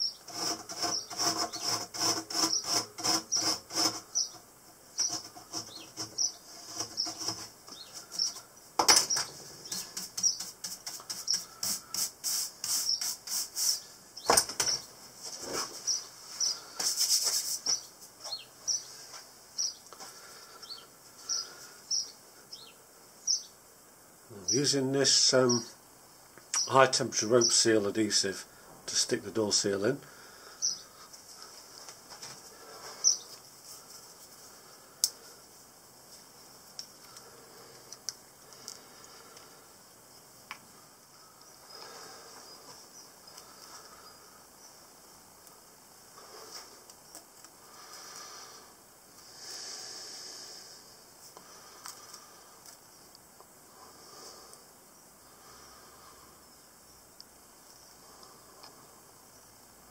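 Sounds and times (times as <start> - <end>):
small birds chirping: 0.0 - 1.8, 2.4 - 15.0, 15.8 - 23.7, 24.4 - 25.8, 26.4 - 27.8, 28.9 - 31.5, 32.5 - 33.9, 36.8 - 45.5
soft scuffing: 15.2 - 18.5.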